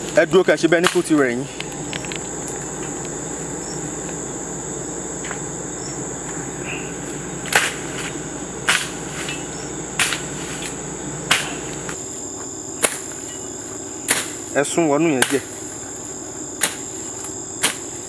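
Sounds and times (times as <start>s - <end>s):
stick whacking undergrowth: 0.0s - 1.7s, 7.0s - 12.0s, 12.8s - 13.4s, 14.0s - 18.0s
crickets trilling: 0.0s - 18.0s.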